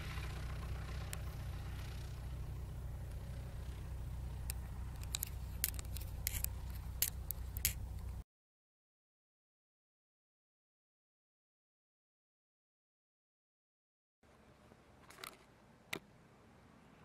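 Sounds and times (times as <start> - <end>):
light aircraft engine droning: 0.0 - 8.2, 14.3 - 17.0
sharp clicks: 4.4 - 8.2.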